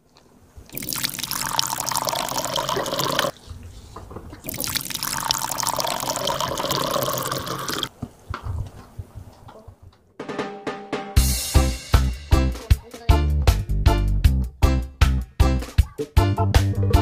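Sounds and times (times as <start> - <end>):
water pouring from kettle: 0.7 - 3.3, 4.4 - 7.9.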